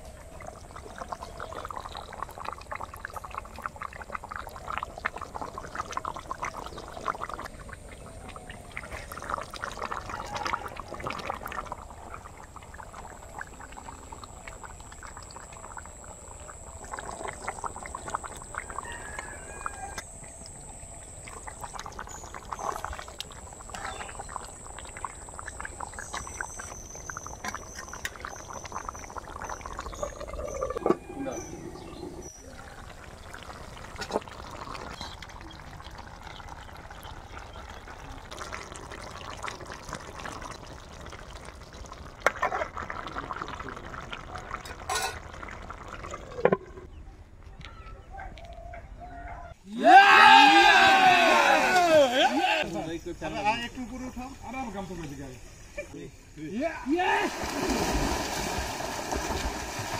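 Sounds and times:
thick curry bubbling: 0:00.0 - 0:47.4.

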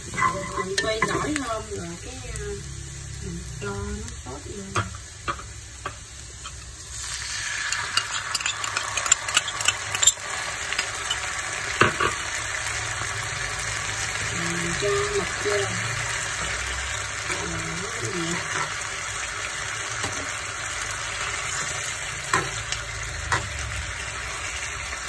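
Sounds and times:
food sizzling in a frying pan: 0:00.0 - 0:25.0
utensil clicking and scraping pan: 0:07.7 - 0:11.3.

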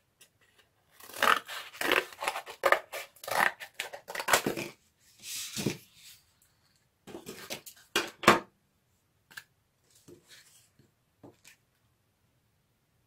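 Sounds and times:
scissors cutting cardboard: 0:00.9 - 0:04.8.

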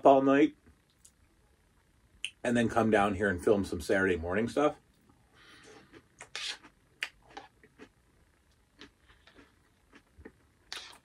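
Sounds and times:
person crunching and chewing: 0:05.5 - 0:08.0, 0:08.8 - 0:11.0.

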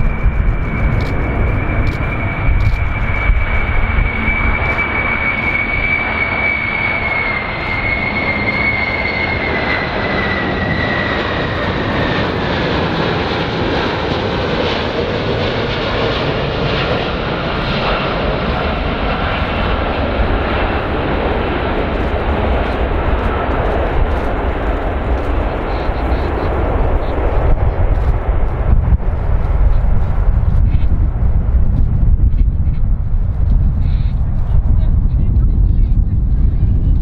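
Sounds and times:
high whine falling in pitch: 0:00.0 - 0:12.2
jet engines roaring: 0:00.0 - 0:37.0.

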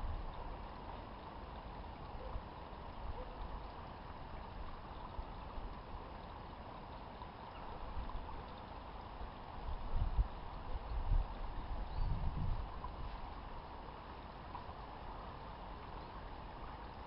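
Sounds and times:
wind buffeting microphone: 0:11.0 - 0:13.0.

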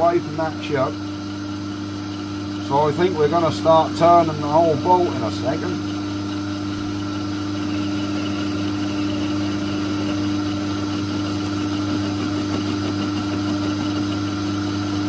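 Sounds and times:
metal lathe humming: 0:00.0 - 0:15.0.

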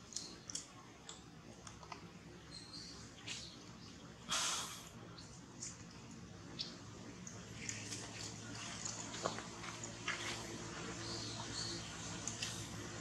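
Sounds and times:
monkey chewing wetly: 0:05.4 - 0:13.0.

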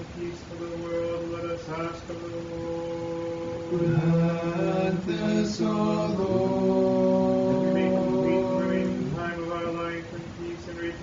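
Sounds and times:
choir chanting in harmony: 0:03.0 - 0:09.6.

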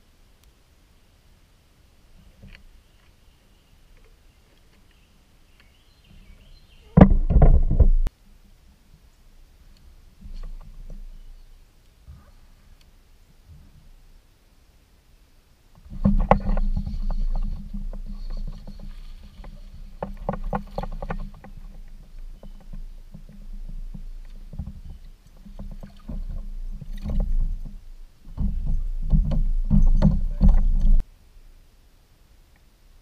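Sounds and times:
low rumble through kayak hull: 0:00.7 - 0:31.8
knocks and clicks on plastic hull: 0:07.0 - 0:08.1, 0:20.0 - 0:31.0.

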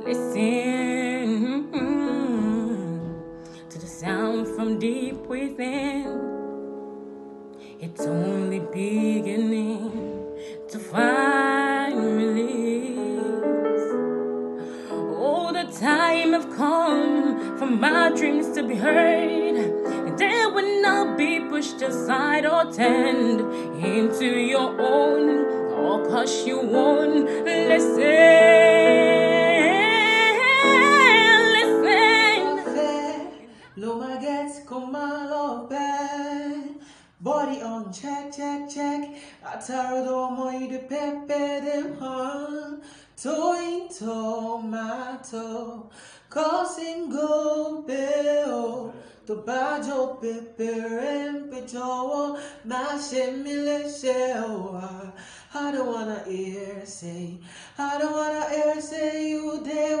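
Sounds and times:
woman singing with vibrato: 0:00.0 - 0:06.3, 0:07.8 - 0:13.6, 0:14.9 - 0:37.4
young man singing unaccompanied: 0:07.8 - 0:13.8, 0:14.9 - 1:00.0.

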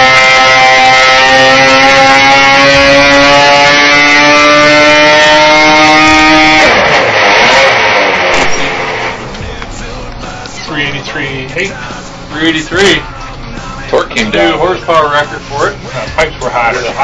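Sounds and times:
snowmobile engine at full throttle: 0:00.0 - 0:08.8.

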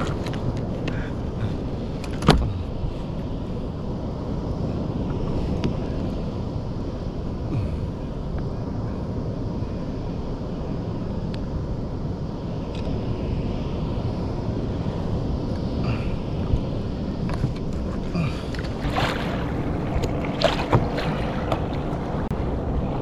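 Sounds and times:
wind buffeting the microphone: 0:00.0 - 0:23.0
sea water moving: 0:13.9 - 0:23.0.

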